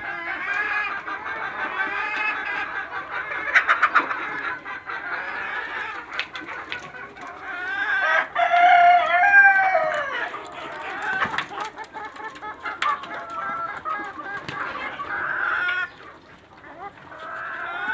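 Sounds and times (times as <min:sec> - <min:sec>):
chickens clucking: 0:00.0 - 0:17.9
rooster crowing: 0:08.0 - 0:10.3.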